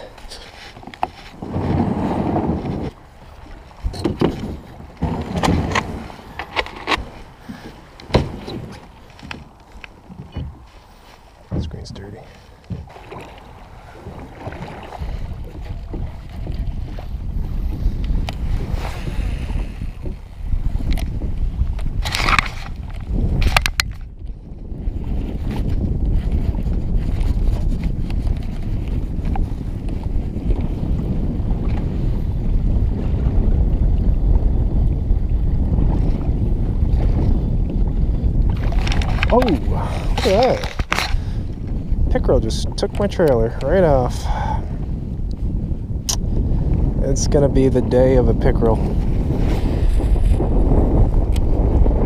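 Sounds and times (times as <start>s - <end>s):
water slapping kayak hull: 0.0s - 52.0s
wind buffeting microphone: 0.0s - 52.0s.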